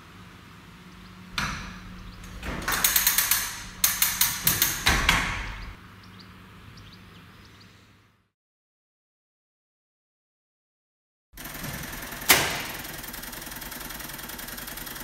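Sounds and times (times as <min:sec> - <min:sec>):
signal linkage clattering clicks: 0:00.9 - 0:05.8.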